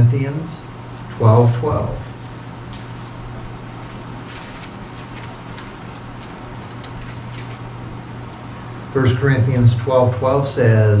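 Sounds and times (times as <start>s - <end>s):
steady low hum: 0.0s - 11.0s
thin pages rustling: 0.9s - 7.8s.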